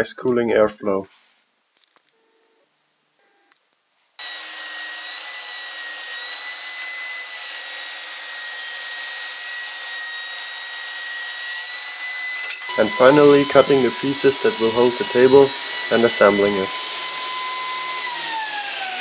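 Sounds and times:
table saw cutting wood: 4.2s - 19.0s.

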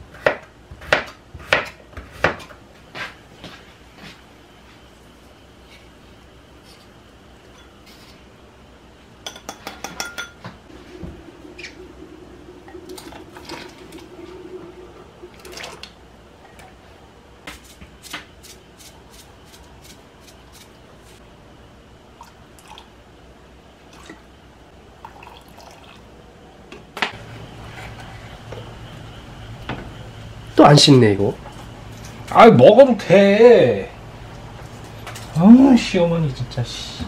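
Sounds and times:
dishes and utensils clinking: 9.2s - 10.6s
water dripping: 11.1s - 16.7s.

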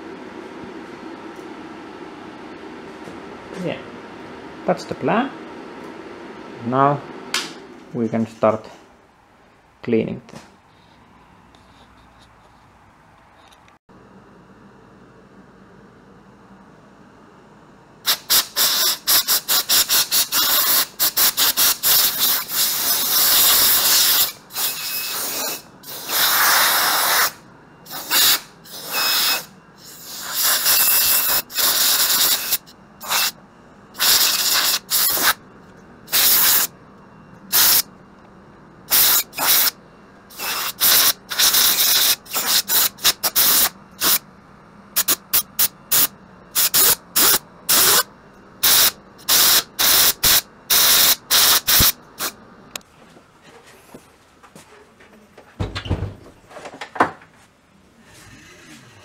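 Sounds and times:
compressed air blasts hissing: 18.1s - 33.4s, 34.0s - 35.4s, 36.1s - 36.7s, 37.5s - 37.8s, 38.9s - 44.2s, 45.0s - 52.4s.

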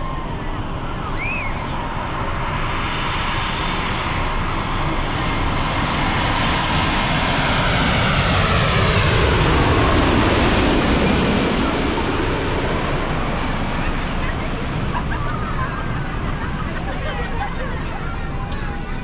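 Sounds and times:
falling jet engine whine: 0.0s - 19.0s
jet airliner passing overhead: 0.0s - 19.0s.

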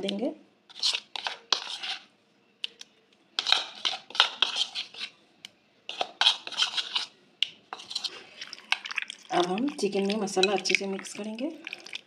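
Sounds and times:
utensil scraping a bowl: 0.7s - 2.1s, 3.4s - 5.2s, 5.9s - 8.8s.

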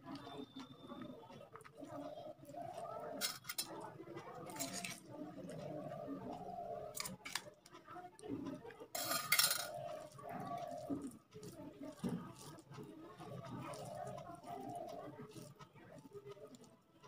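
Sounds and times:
spoon clinking on steel dishes: 4.5s - 5.0s, 9.0s - 9.7s.

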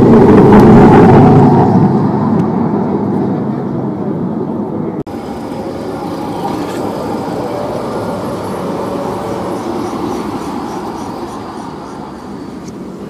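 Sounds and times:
tram wheels rumbling on rails: 0.0s - 13.0s.

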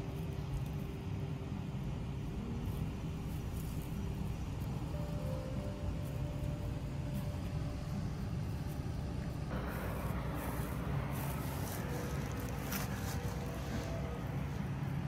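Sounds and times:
low rumble: 4.3s - 15.0s.

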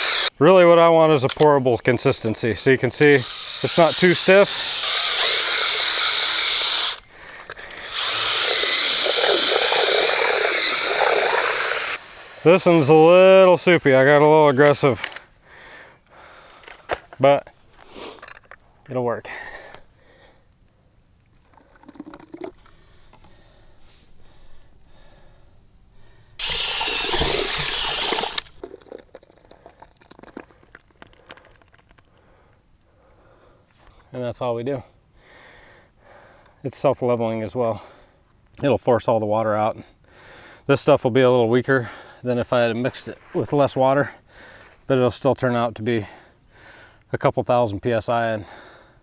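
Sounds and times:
drill mixing cement: 0.0s - 0.4s, 3.0s - 14.7s, 26.4s - 28.8s
cement dripping and trickling: 21.3s - 22.7s, 26.8s - 32.8s
cement gushing and splashing: 26.4s - 32.1s.

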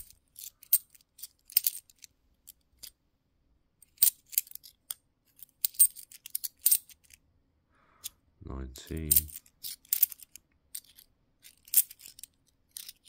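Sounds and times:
coins clinking: 0.0s - 2.1s, 3.8s - 7.2s, 8.9s - 13.0s.

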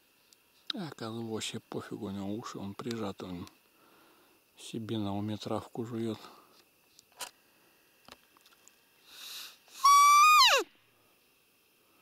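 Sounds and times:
deer call whistled squeak: 9.8s - 10.7s.

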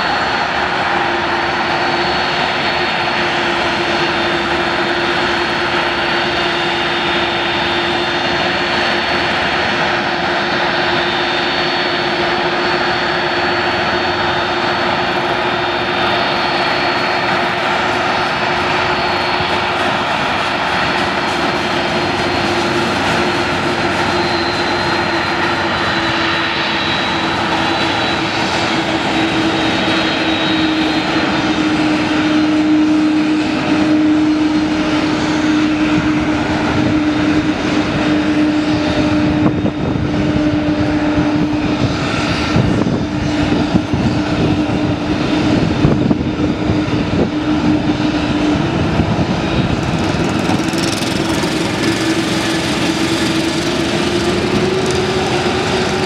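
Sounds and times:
jet engines whining: 0.0s - 56.0s.

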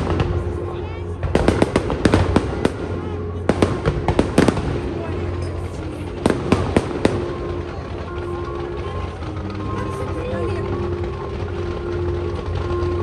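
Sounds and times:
fireworks bangs and crackles: 0.0s - 13.0s.

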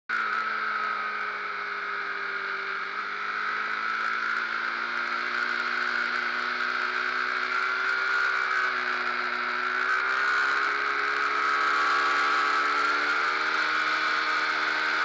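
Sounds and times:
motorcycle engine running: 0.1s - 15.0s.

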